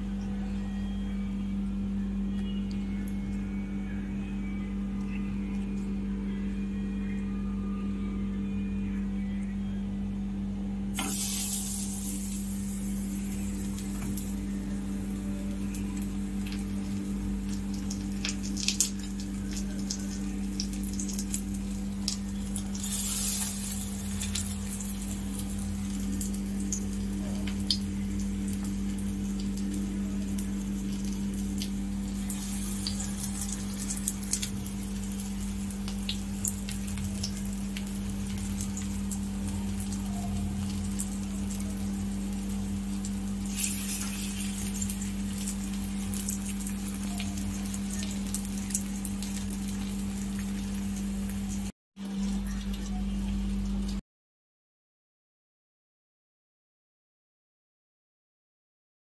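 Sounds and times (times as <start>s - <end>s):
low hum: 0.0s - 54.0s
bread sizzling in oil: 11.0s - 52.6s.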